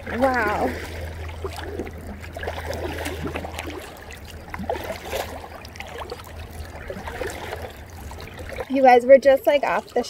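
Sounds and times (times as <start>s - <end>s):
low steady rumble: 0.0s - 10.0s
paddle strokes in water: 0.0s - 10.0s.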